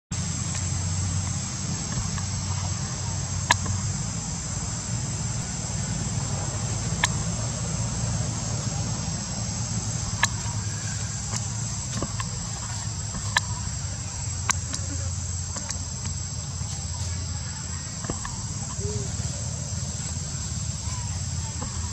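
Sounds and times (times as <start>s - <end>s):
low steady rumble: 0.1s - 21.9s
high-pitched insect drone: 0.2s - 21.9s
sharp clicks: 6.9s - 7.4s, 10.0s - 13.7s.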